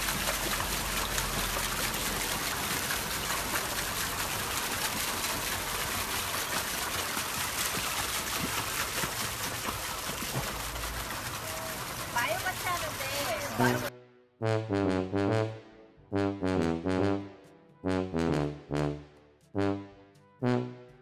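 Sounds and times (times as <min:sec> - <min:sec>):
crackling splashes: 0:00.0 - 0:13.9
trickling water hiss: 0:00.0 - 0:13.9.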